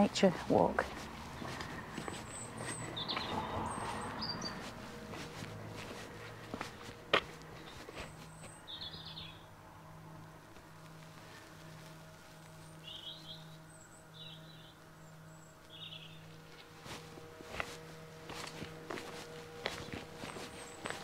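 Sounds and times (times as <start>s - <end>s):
footsteps: 0.0s - 8.6s, 16.4s - 21.0s
small birds chirping: 0.0s - 10.2s, 10.9s - 21.0s.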